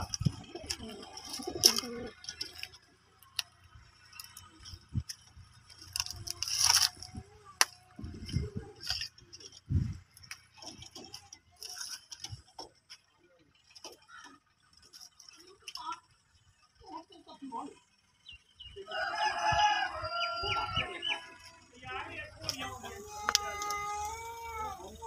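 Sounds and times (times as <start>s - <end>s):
pigeons cooing: 0.0s - 3.1s
light clicks and rustles: 0.0s - 16.1s.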